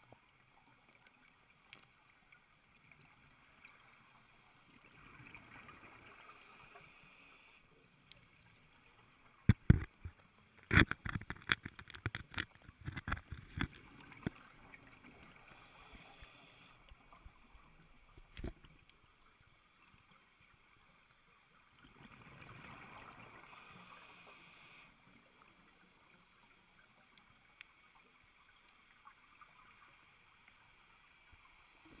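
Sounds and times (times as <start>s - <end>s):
knocks and scrapes on camera housing: 9.5s - 13.8s.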